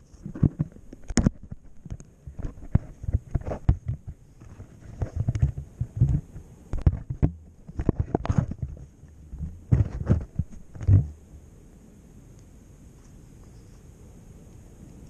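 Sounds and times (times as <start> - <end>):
hands knocking and rubbing camera: 0.2 - 11.1.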